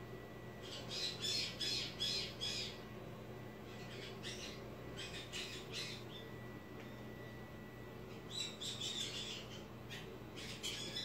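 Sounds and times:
parrot squawks: 8.3 - 11.0.

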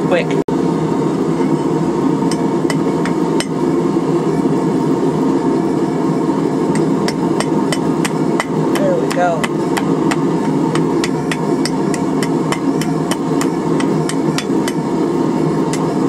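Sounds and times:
steady loud rushing noise: 0.1 - 16.0
hammer striking hot metal on anvil: 2.2 - 3.8, 5.6 - 15.0, 15.6 - 16.0.

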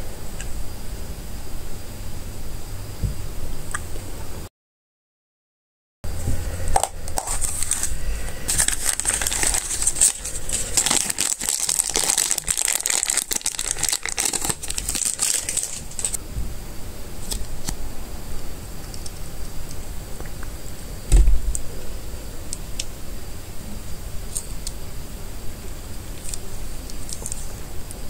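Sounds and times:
plastic bag crinkling: 6.8 - 16.2.

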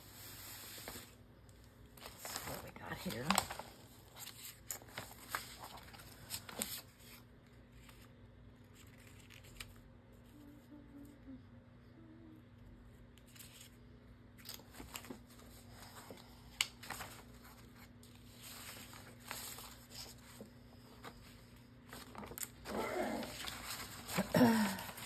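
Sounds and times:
faint steady hum: 0.0 - 25.0
paper rustling: 2.0 - 9.8, 14.4 - 25.0.

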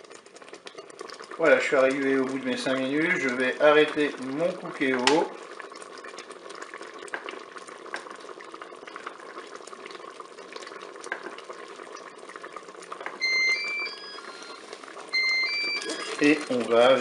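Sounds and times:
jam bubbling and popping: 0.0 - 17.0
two-note electronic beep: 13.2 - 14.6, 15.2 - 16.2.

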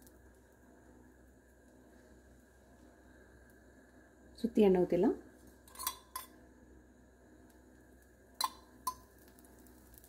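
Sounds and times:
metal spoon clinking on cup: 5.7 - 6.4, 8.4 - 9.1.

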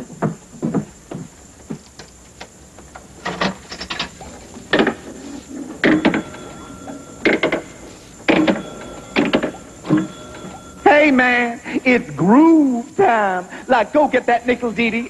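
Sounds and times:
thin steady whine: 0.0 - 15.0
jukebox mechanism clanking: 3.2 - 10.9.

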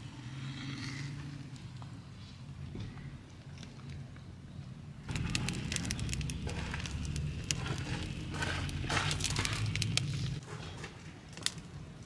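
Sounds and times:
firewood crackling and popping: 5.0 - 12.0.

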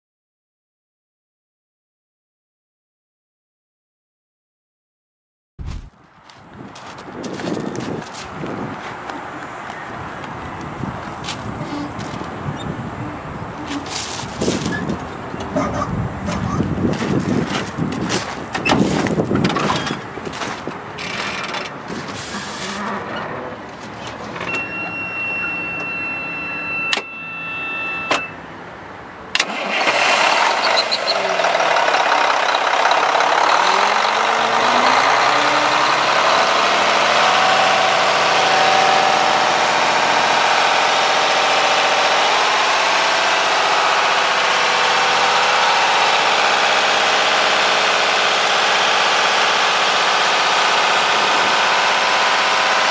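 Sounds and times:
steady high tone: 24.5 - 28.4
diesel truck engine starting: 29.3 - 52.9.

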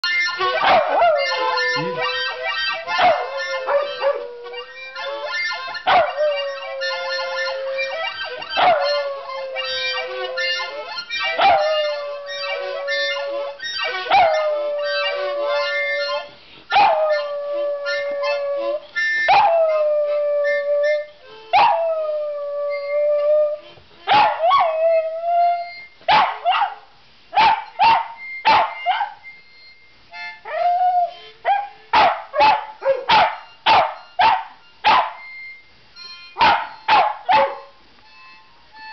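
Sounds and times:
sharp harmonica blasts: 0.0 - 19.8, 27.3 - 38.9
harmonica chords: 0.0 - 38.9
dog howling: 0.5 - 26.6.

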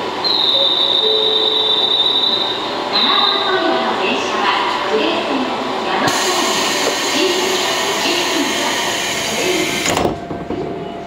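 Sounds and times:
pneumatic door hissing: 6.1 - 10.1.

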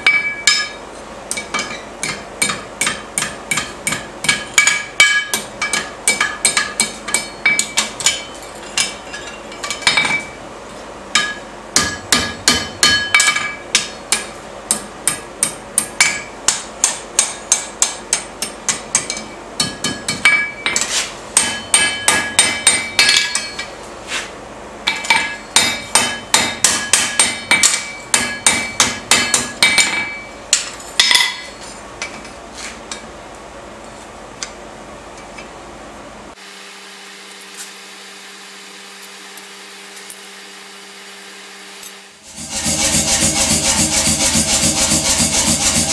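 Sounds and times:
hammer striking metal on anvil: 0.0 - 10.4, 11.1 - 23.7, 24.9 - 32.1
anvil ringing: 11.2 - 14.8.

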